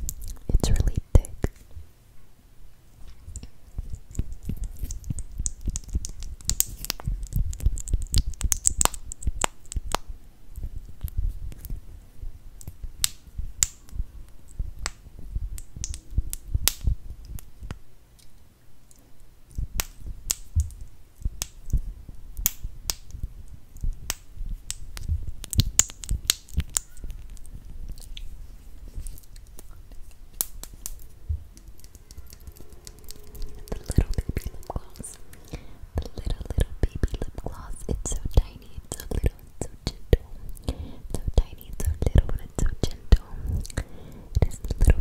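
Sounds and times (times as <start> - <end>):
mouth clicks and smacks: 3.3 - 11.8, 12.6 - 28.3, 29.0 - 45.0
low rumble: 3.7 - 17.9, 19.5 - 40.5.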